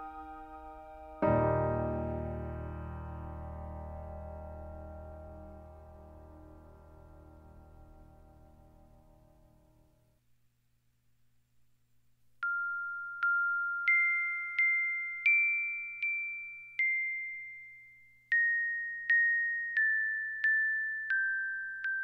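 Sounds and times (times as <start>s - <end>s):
music box melody: 12.4s - 22.0s.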